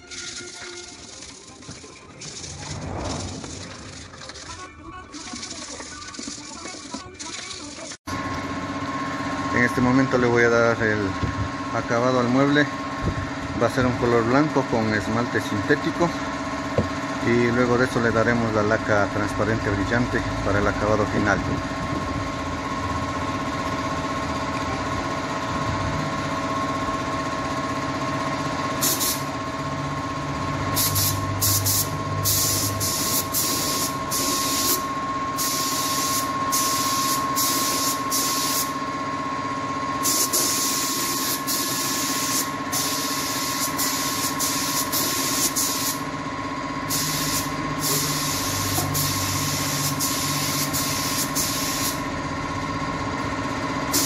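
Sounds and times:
motor hum: 0.0 - 10.1
spray gun hissing: 28.8 - 29.3, 30.8 - 34.8, 35.4 - 38.8, 40.0 - 46.0, 46.9 - 52.0.

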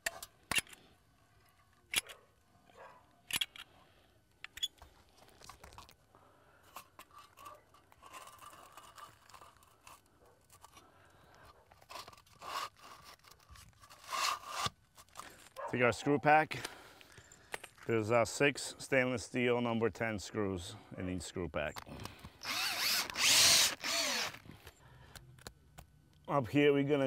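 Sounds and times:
metal flashing scraping on shingles: 6.6 - 15.6.

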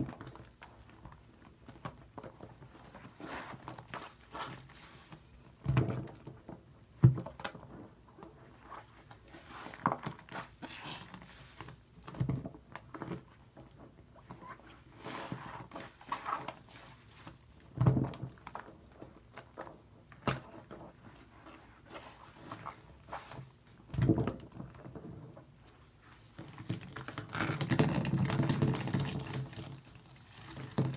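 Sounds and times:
sponge squelching in foam: 2.9 - 5.4, 8.5 - 11.9, 14.6 - 17.6, 21.0 - 23.6.

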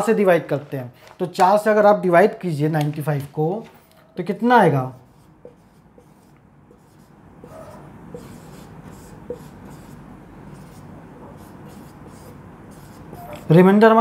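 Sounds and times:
marker scratching on whiteboard: 4.8 - 13.7.

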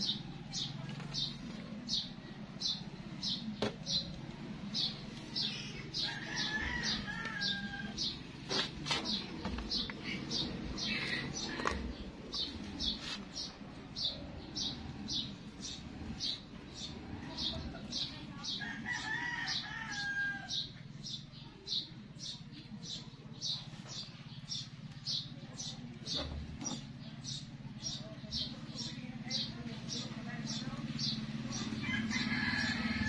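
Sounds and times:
rooster crowing: 6.0 - 8.2, 18.6 - 20.7, 31.8 - 33.0.

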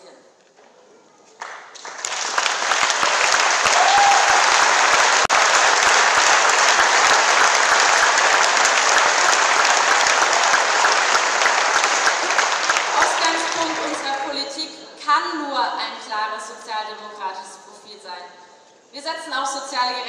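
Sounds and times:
large audience applauding: 1.4 - 14.3.

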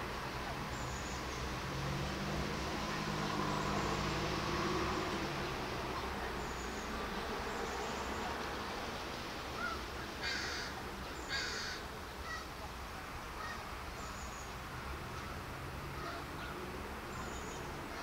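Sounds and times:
outdoor hiss and rumble: 0.0 - 18.0
crow cawing: 9.6 - 12.4.

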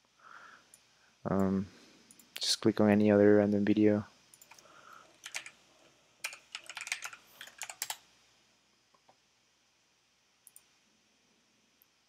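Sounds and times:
typing on keyboard: 5.2 - 5.6, 6.2 - 8.0.

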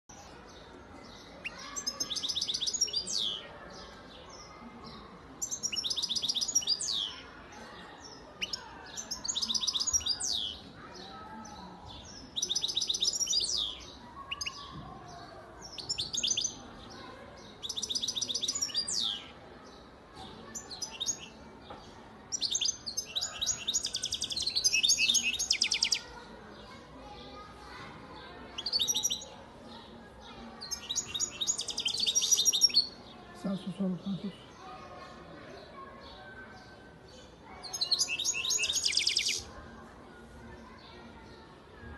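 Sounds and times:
goldfinch singing: 37.7 - 39.4.

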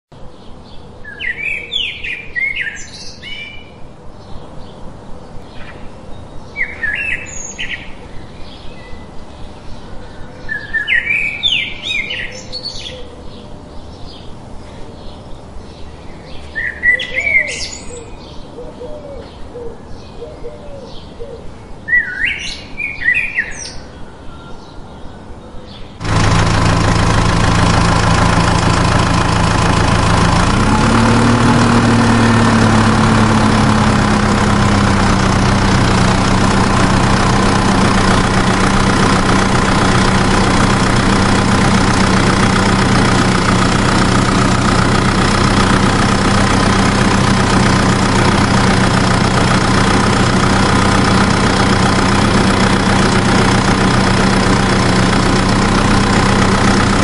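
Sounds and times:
songbird chirping: 0.2 - 26.0
engine idling: 26.0 - 57.0.

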